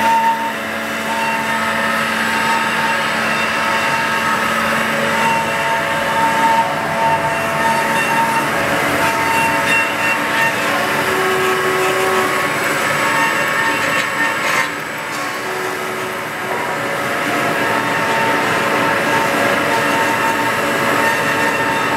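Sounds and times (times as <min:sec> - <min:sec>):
band saw cutting metal: 0:00.0 - 0:21.9.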